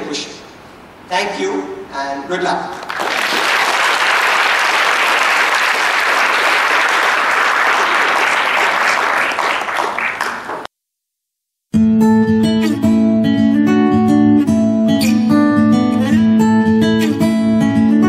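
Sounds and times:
large audience applauding: 2.8 - 10.7.

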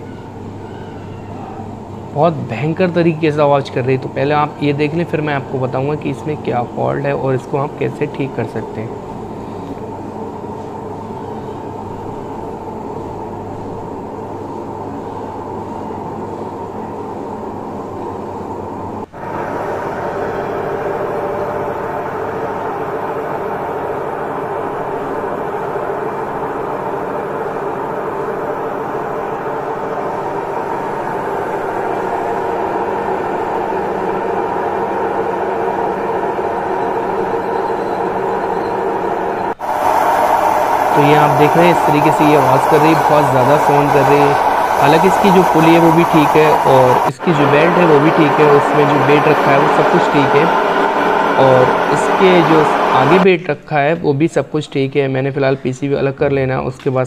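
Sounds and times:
washing machine drum spinning: 19.1 - 53.2.

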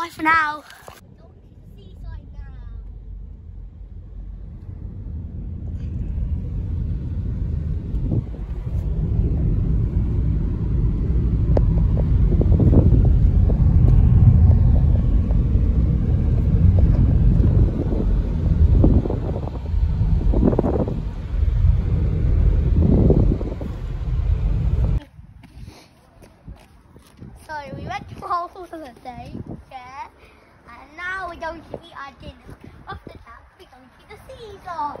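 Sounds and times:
car road and engine rumble: 0.2 - 25.1.

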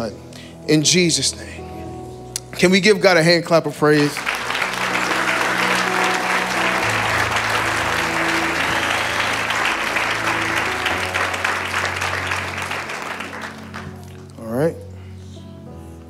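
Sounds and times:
congregation clapping: 3.9 - 14.4.

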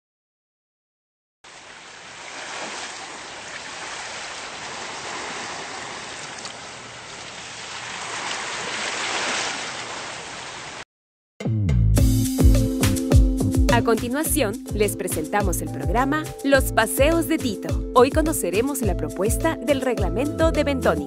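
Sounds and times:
waves breaking on rocky shore: 1.5 - 10.8.

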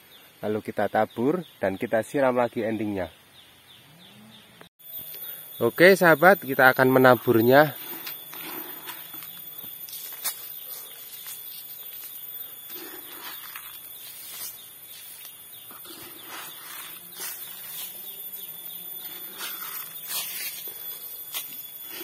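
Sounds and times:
insects droning: 4.8 - 22.0.

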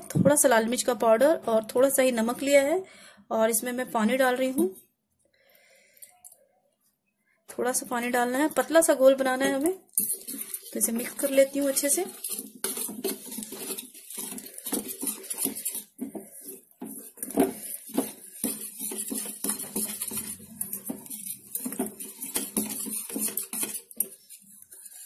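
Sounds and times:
wire whisk clinking in metal bowl: 9.4 - 25.0.

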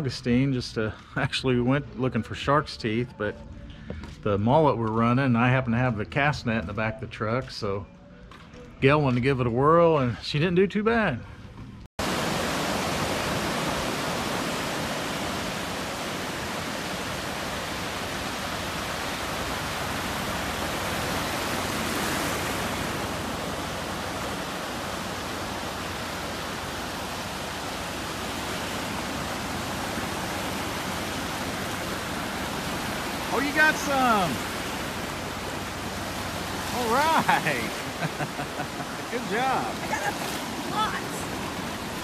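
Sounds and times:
wind: 0.0 - 42.0
surf: 12.0 - 42.0.

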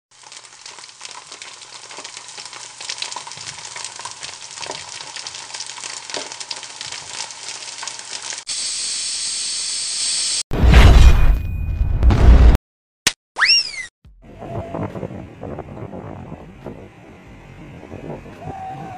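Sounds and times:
sizzling crackle with pops: 0.1 - 9.2.

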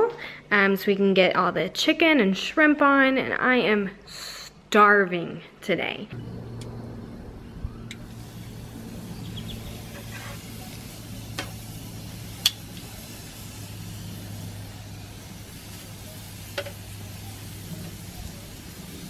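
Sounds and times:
steady low hum: 6.1 - 19.0
chicken sizzling on a grill: 7.9 - 19.0
tongs clicking against grate: 12.4 - 12.9.

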